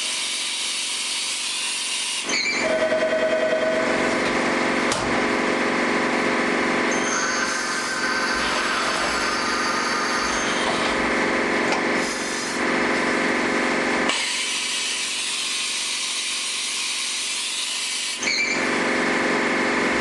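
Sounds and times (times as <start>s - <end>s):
machine spindle whine: 0.1s - 20.0s
hissing cutting noise: 6.9s - 12.6s.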